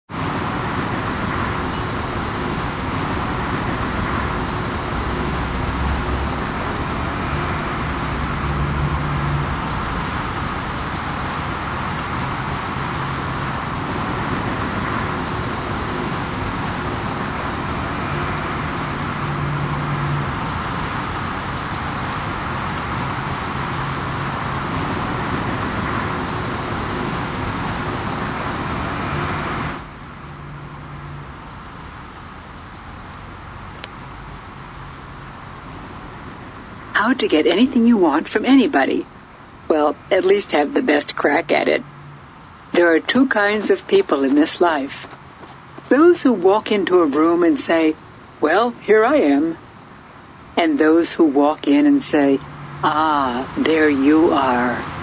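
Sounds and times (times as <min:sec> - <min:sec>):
road traffic rush: 0:00.0 - 0:55.0.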